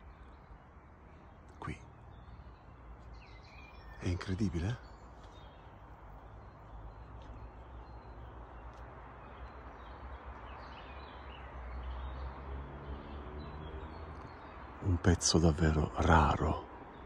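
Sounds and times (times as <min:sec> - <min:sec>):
faint bird chirps: 0:00.0 - 0:12.3.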